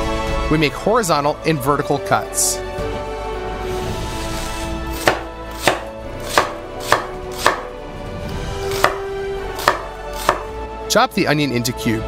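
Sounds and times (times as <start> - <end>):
knife knocking on cutting board: 5.0 - 7.7, 8.8 - 10.4.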